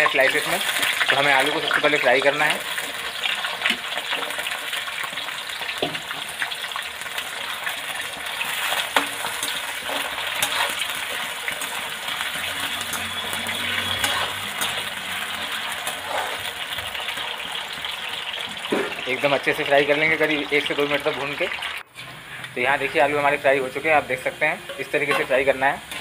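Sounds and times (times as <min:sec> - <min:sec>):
potato slices sizzling in oil: 0:00.0 - 0:26.0
metal spoon clinking and scraping pan: 0:07.2 - 0:19.0, 0:24.3 - 0:26.0.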